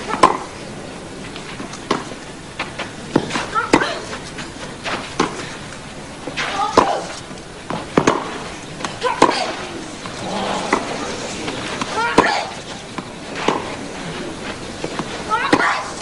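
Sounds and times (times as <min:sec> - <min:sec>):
tennis ball hit with rackets: 0:00.1 - 0:00.5, 0:01.8 - 0:02.1, 0:03.1 - 0:04.2, 0:04.8 - 0:05.5, 0:06.3 - 0:07.1, 0:07.7 - 0:13.8
player grunting: 0:10.2 - 0:11.4.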